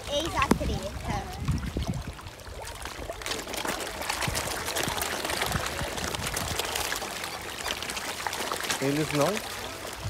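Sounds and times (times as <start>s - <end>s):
koi splashing at water surface: 0.0s - 10.0s.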